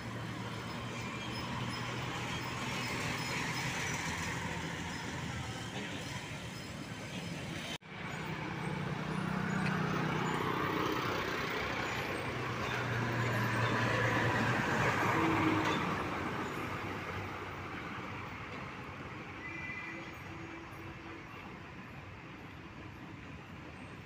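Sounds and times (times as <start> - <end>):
truck passing by: 0.0 - 18.5.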